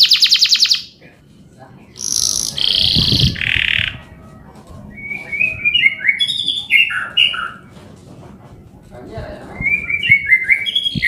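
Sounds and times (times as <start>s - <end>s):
canary singing: 0.0s - 1.0s, 1.9s - 7.7s, 9.5s - 11.0s.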